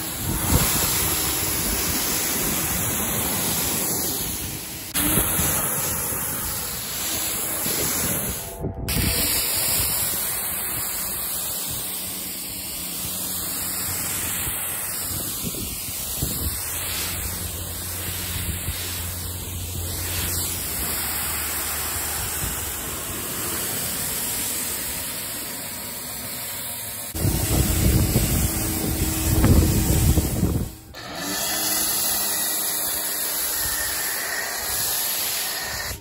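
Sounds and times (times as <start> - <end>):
pressure washer spraying water: 0.0 - 36.0
low hum: 3.6 - 14.1.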